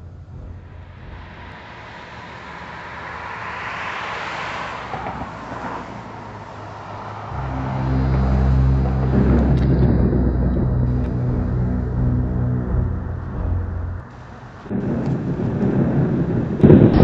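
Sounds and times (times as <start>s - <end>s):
car passing by: 0.8s - 14.1s
loud low steady hum: 7.3s - 14.5s.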